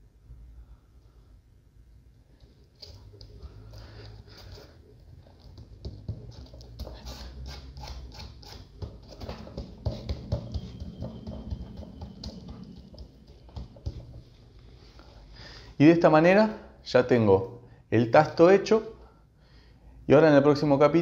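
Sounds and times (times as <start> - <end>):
sandpaper scratching on board: 6.7 - 9.3.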